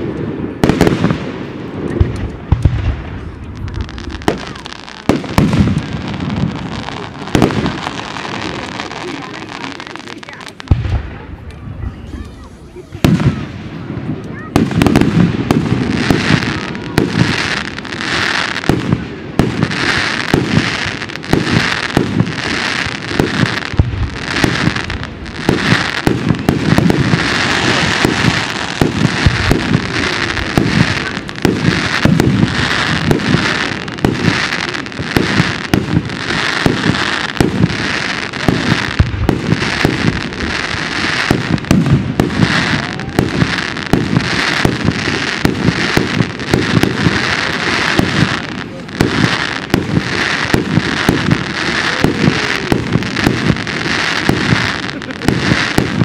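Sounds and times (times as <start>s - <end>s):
fireworks crackling: 0.0s - 56.0s
firework shells bursting: 12.9s - 56.0s.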